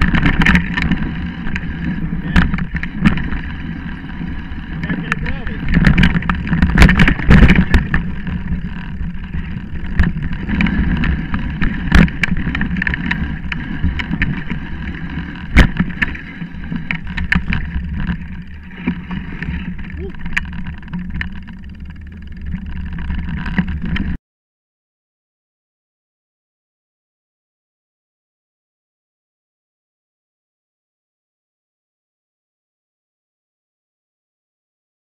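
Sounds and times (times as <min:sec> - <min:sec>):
bike rattling and knocking on bumps: 0:00.0 - 0:24.2
bike tyres rumbling on dirt trail: 0:00.0 - 0:24.2
wind: 0:00.0 - 0:24.2.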